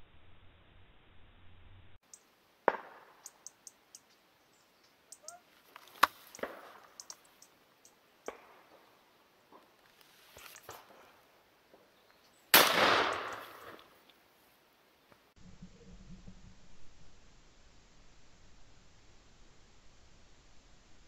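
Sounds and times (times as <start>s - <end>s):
faint high ticks: 4.8s - 8.4s.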